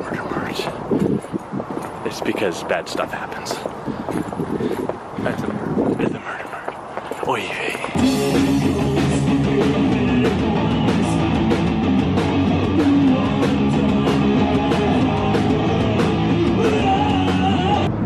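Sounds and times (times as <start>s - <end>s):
drum hits: 8.0s - 16.2s
rock band playing: 8.0s - 17.9s.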